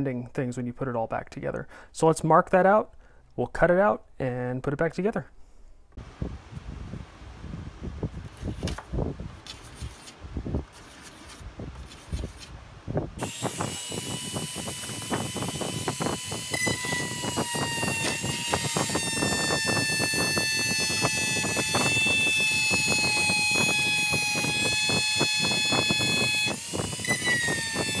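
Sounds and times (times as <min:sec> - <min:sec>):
pencil scratching on plastic: 0:09.4 - 0:12.5
rotary tool cutting plastic: 0:09.4 - 0:12.5, 0:13.2 - 0:28.0.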